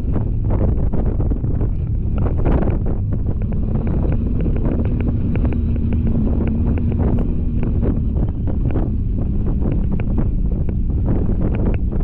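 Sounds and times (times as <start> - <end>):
vehicle engine: 0.0 - 12.0
wind buffeting microphone: 0.0 - 12.0.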